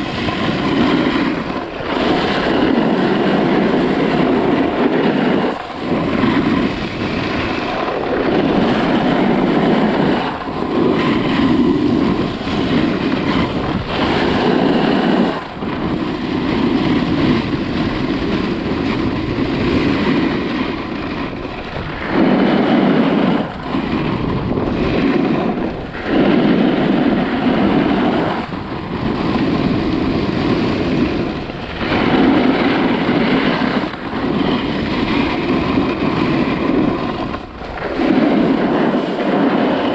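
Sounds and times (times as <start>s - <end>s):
skis carving on snow: 0.0s - 39.9s
wind buffeting microphone: 0.0s - 39.9s.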